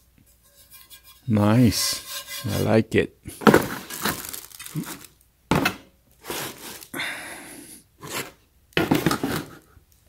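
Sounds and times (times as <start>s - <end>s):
cardboard rustling: 3.4s - 6.9s.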